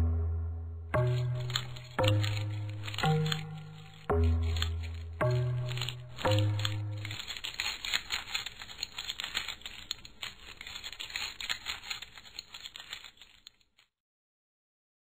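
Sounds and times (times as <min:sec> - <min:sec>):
low note: 0:00.0 - 0:03.4
small bones clattering: 0:01.0 - 0:13.9.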